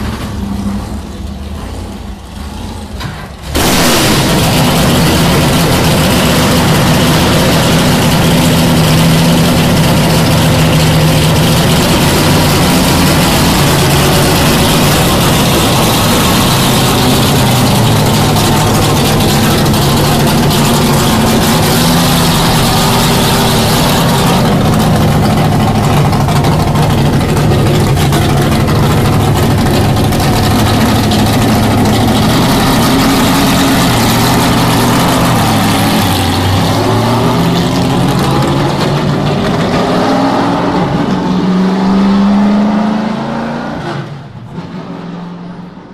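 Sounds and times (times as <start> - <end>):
race car engine idling: 0.0 - 39.8.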